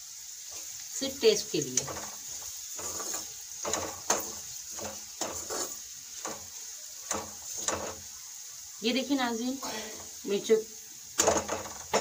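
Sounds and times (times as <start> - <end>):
chillies sizzling in oil: 0.0 - 12.0
metal spoon scraping a pan: 1.6 - 8.3, 11.2 - 12.0.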